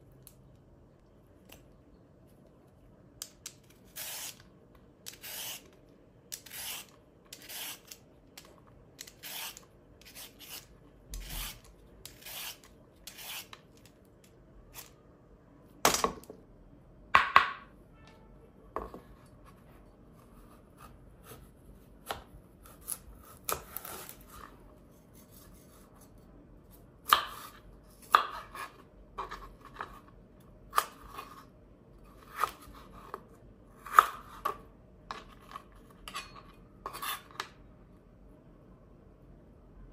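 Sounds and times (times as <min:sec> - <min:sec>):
peeler scraping carrot: 0:03.9 - 0:04.4, 0:05.0 - 0:13.9.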